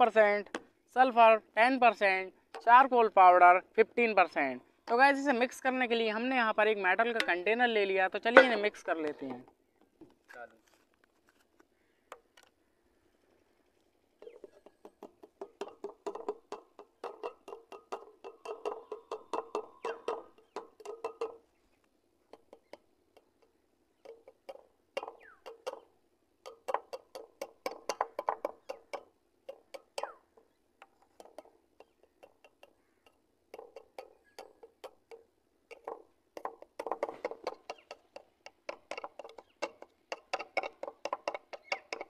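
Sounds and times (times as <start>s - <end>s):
plastic bottles tapping metal tin: 8.2s - 9.5s, 14.2s - 21.5s, 22.3s - 42.0s.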